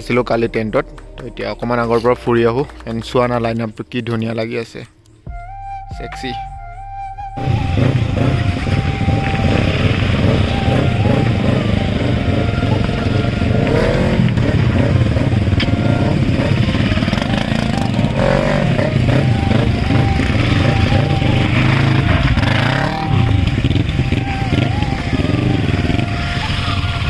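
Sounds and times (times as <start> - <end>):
motorcycle engines revving: 7.4 - 27.0.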